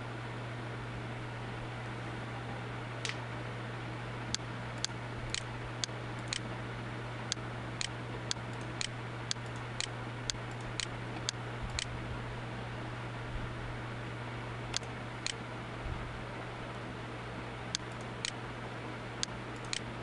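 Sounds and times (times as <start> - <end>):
low hum and hiss: 0.0 - 20.0
sharp evenly spaced ticks: 4.3 - 6.5, 7.3 - 11.9, 14.7 - 15.4, 17.7 - 18.4, 19.2 - 19.9.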